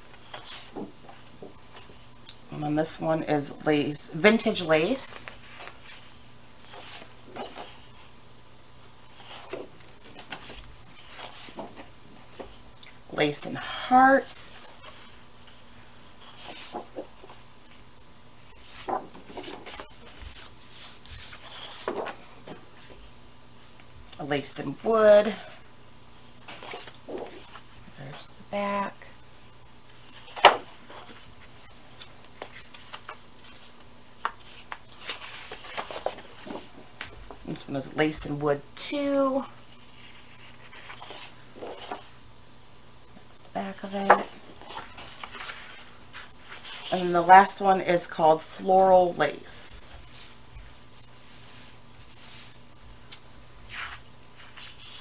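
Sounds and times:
paper rustling and sliding: 0.1 - 2.0, 5.3 - 8.1, 9.0 - 12.6, 14.7 - 17.8, 18.4 - 23.1, 26.4 - 28.2, 29.9 - 37.4, 39.7 - 42.2, 44.1 - 47.1, 50.0 - 52.7, 53.6 - 55.0.

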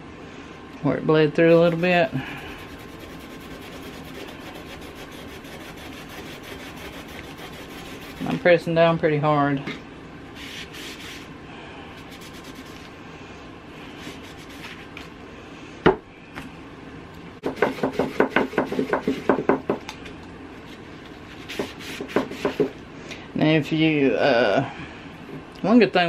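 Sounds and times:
paper towel scrubbing wood: 1.5 - 8.5, 10.4 - 11.3, 12.0 - 12.9, 13.9 - 14.9, 21.3 - 22.7.

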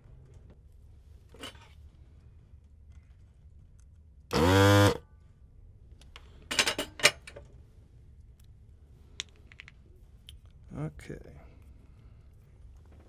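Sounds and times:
desoldering pump buzzing: 4.3 - 5.0.

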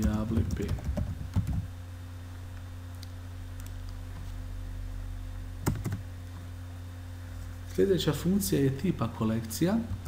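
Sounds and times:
keyboard typing: 0.0 - 1.7, 5.6 - 6.0
low electrical hum: 0.0 - 10.0.

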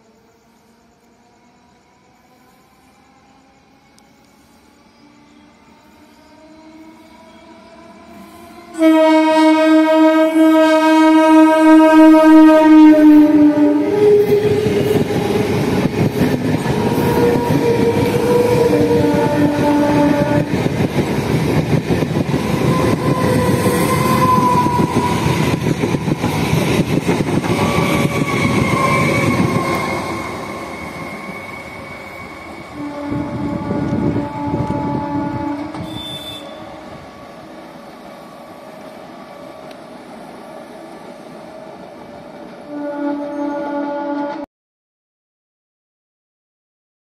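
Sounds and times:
wheels rushing on rail: 0.0 - 44.4
train horn blast: 5.9 - 20.8, 22.2 - 25.7, 27.4 - 37.0, 42.6 - 44.5.

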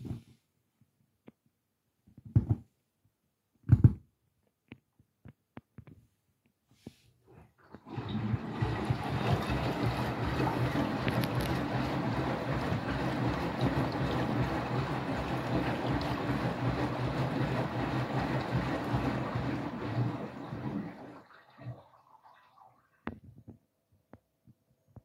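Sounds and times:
water sloshing in washing machine: 7.3 - 23.4
low motor hum: 7.8 - 21.1.

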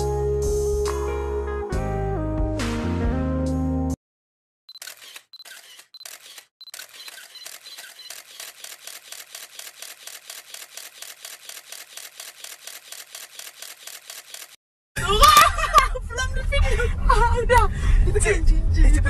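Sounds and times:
rapid sharp clicks: 4.7 - 14.6.

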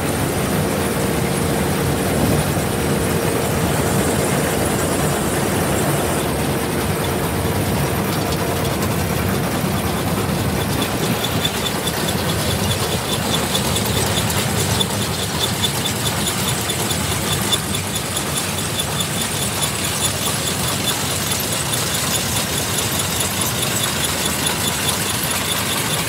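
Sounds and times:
harvester engine noise: 0.0 - 26.0
mechanical clatter: 0.0 - 26.0
fast high-pitched ticking: 7.3 - 26.0.

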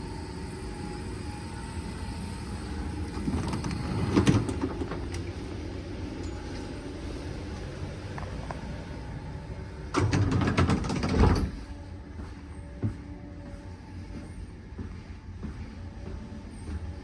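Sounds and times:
tram equipment humming: 0.0 - 17.0
clunks and clicks: 3.1 - 5.4, 9.9 - 11.6.

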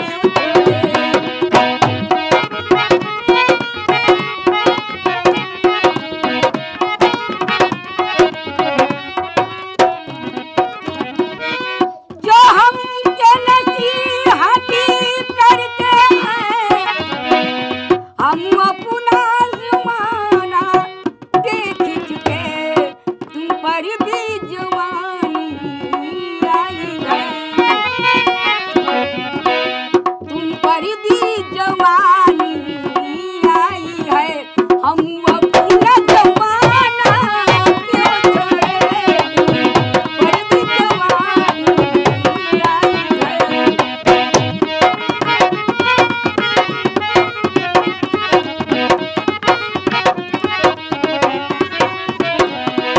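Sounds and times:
woman singing folk song: 0.0 - 1.6, 12.2 - 16.9, 18.1 - 27.8, 30.3 - 39.6, 40.2 - 43.8
hand drum rhythm: 0.0 - 52.9.

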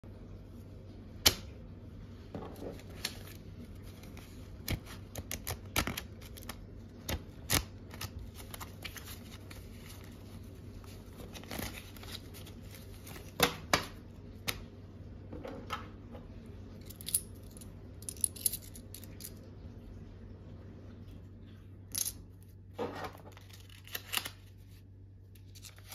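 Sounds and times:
banknotes snapping and flicking: 4.1 - 9.6.

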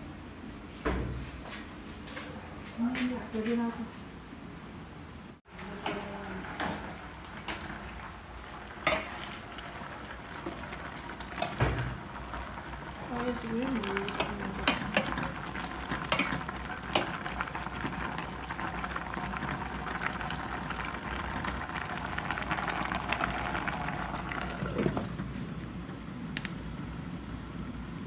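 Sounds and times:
pot bubbling: 5.5 - 28.0
ladle stirring: 8.7 - 18.8
metal clinking against pot: 14.1 - 15.3.

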